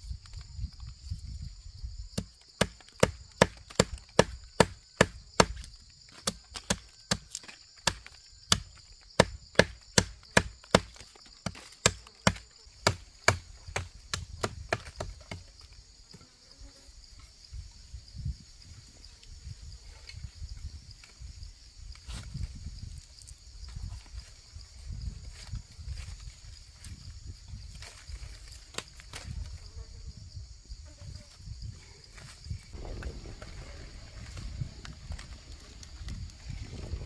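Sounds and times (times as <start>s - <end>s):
insects chirring: 0.0s - 37.0s
chopping wood: 2.2s - 15.6s.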